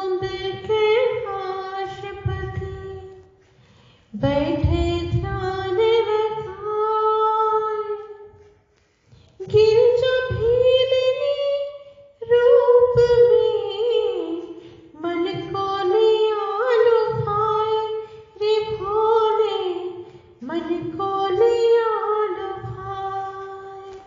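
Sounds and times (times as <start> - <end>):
woman singing devotional song: 0.0 - 3.3, 4.1 - 8.5, 9.4 - 24.0.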